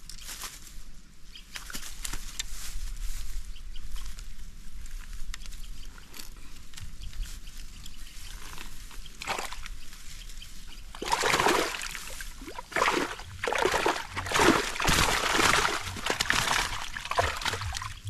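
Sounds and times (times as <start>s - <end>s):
splashing in wet grass: 9.2s - 9.7s, 10.9s - 18.0s.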